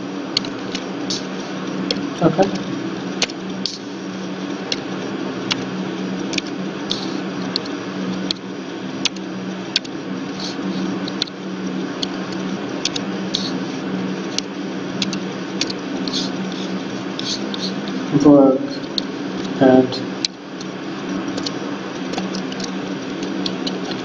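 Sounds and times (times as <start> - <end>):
steady low hum: 0.0 - 24.0
keyboard and mouse clicks: 9.0 - 10.5, 14.3 - 16.6, 21.3 - 24.0.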